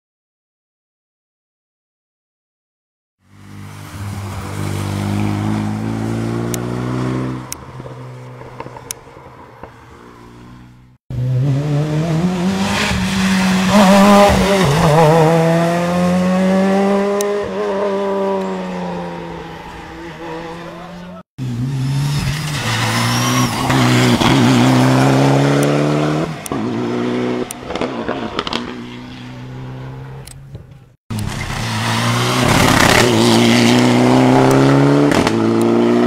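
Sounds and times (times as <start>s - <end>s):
rally car engine at full throttle: 9.6s - 36.0s.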